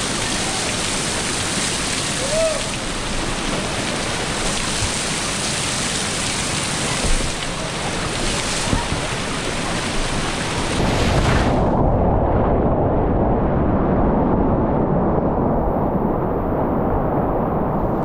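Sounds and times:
whitewater rapids rushing: 0.0s - 11.5s
water washing over microphone: 0.0s - 12.7s.

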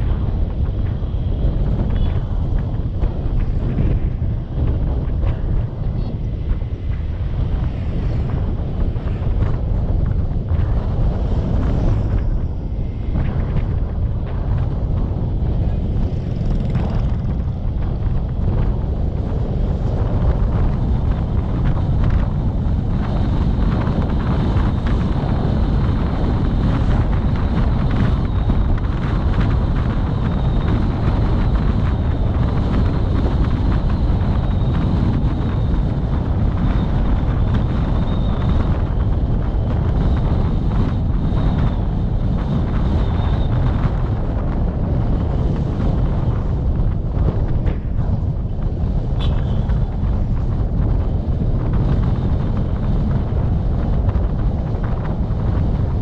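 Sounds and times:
road vehicle rumble: 0.0s - 56.0s
wind buffeting microphone: 0.0s - 56.0s.

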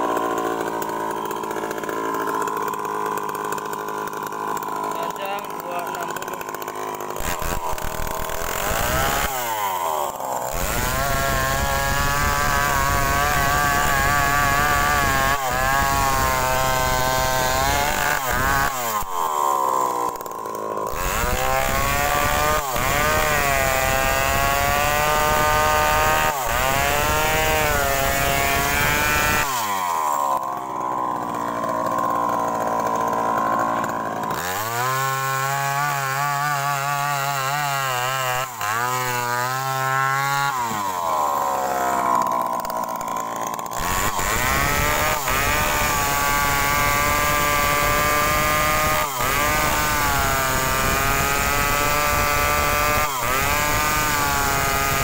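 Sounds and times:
chainsaw cutting wood: 0.0s - 55.0s.

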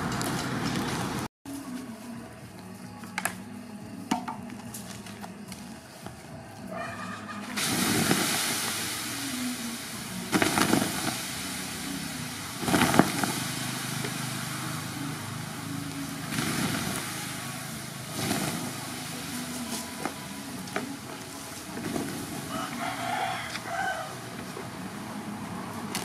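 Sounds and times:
hissing and sizzling steam: 3.1s - 26.0s
water splashing onto wood: 7.4s - 24.5s.

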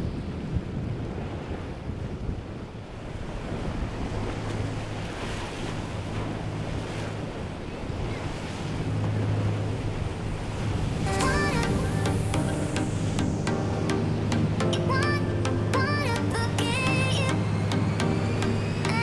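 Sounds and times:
wind buffeting microphone: 0.0s - 15.1s
rushing wake and spray: 0.0s - 19.0s
boat engine drone: 2.9s - 19.0s.

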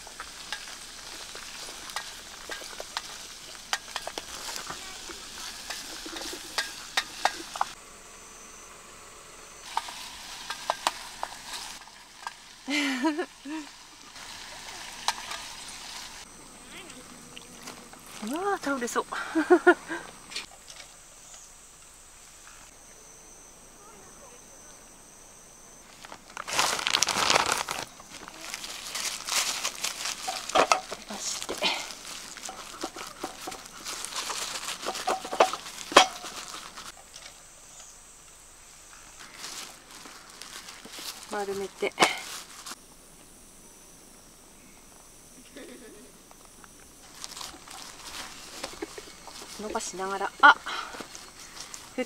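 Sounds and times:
food sizzling in a pan: 0.0s - 7.8s, 9.6s - 16.3s
plastic crinkling: 26.0s - 36.9s, 47.0s - 50.2s.

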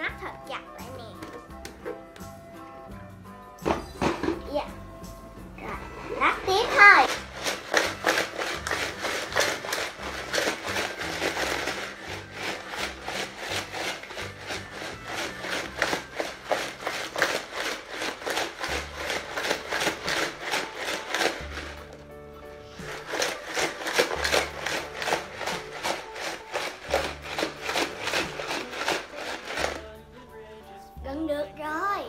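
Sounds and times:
ice rattling in shaken plastic jar: 6.8s - 22.0s, 22.7s - 30.0s.

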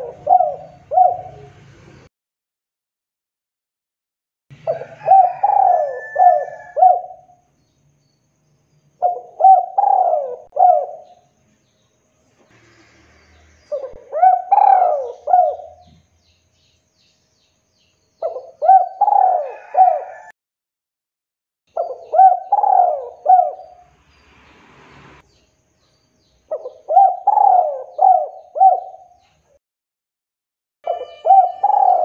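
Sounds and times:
dove cooing: 0.0s - 1.6s, 4.6s - 7.4s, 9.0s - 11.2s, 13.7s - 16.0s, 18.2s - 20.3s, 21.8s - 23.8s, 26.5s - 29.2s, 30.9s - 32.0s.

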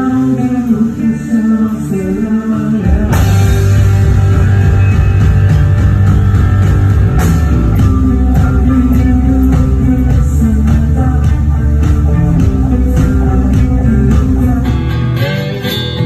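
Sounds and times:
rock band playing live: 0.0s - 16.0s.

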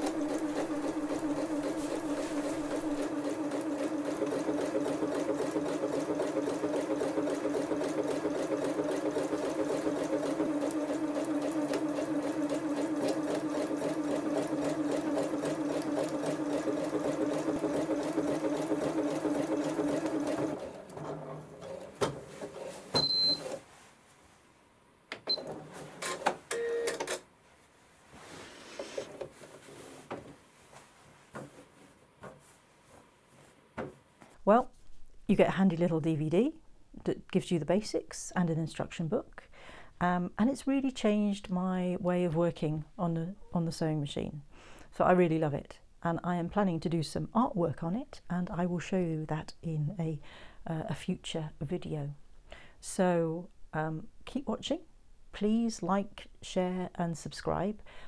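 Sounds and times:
sewing machine stitching: 0.0s - 23.6s.

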